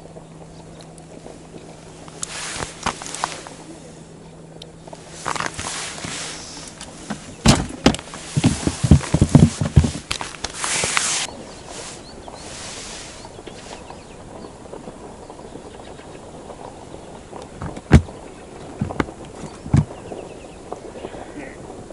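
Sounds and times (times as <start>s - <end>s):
scratchy rustle: 1.9s - 4.0s, 4.9s - 14.2s
clothing rustling: 2.0s - 3.7s, 5.0s - 13.8s
dull thumps: 4.9s - 11.3s, 17.4s - 20.1s.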